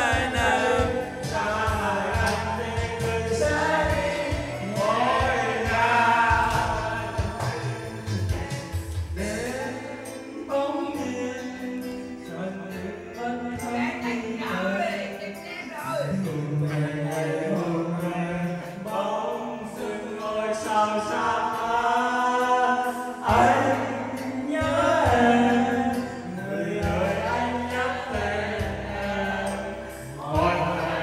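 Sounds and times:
heavy bass: 0:00.0 - 0:09.9, 0:26.8 - 0:31.0
people singing along: 0:00.0 - 0:12.0, 0:16.2 - 0:31.0
karaoke music over loudspeaker: 0:00.0 - 0:31.0.

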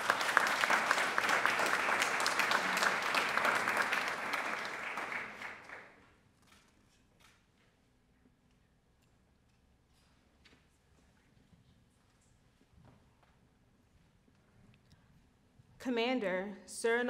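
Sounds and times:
audience applauding: 0:00.0 - 0:06.0.

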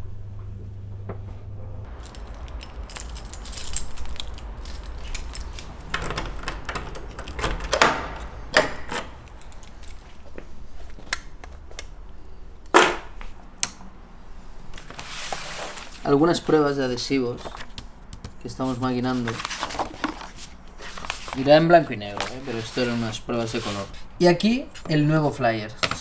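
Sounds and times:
low lift hum: 0:00.0 - 0:14.7
keys jangling and clicking: 0:01.9 - 0:10.4
rustling handling noise: 0:01.9 - 0:11.8, 0:14.6 - 0:25.1.

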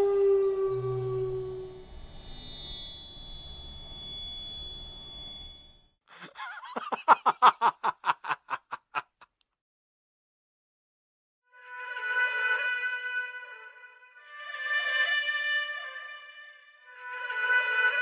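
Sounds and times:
high sustained synth tones: 0:00.0 - 0:05.9.

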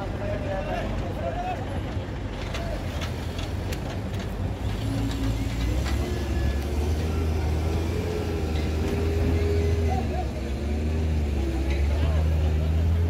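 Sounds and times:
vehicle engines rumbling: 0:00.0 - 0:13.0.

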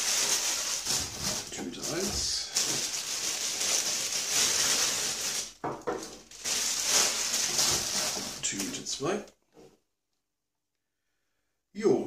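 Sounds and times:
plastic wrap rustling: 0:00.0 - 0:09.2.

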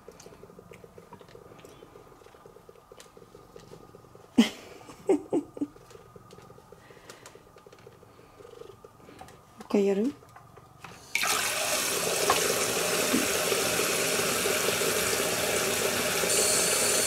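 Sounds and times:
cat purring: 0:00.0 - 0:09.6.

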